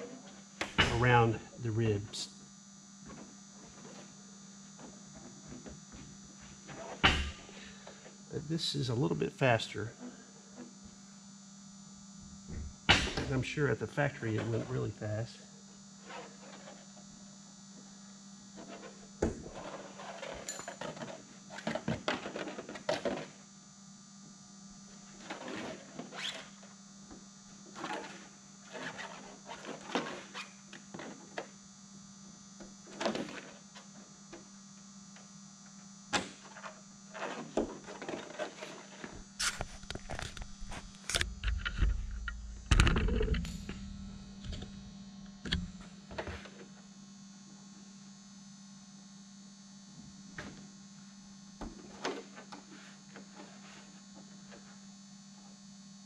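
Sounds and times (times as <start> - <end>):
steady electrical hum: 0.0 - 56.0.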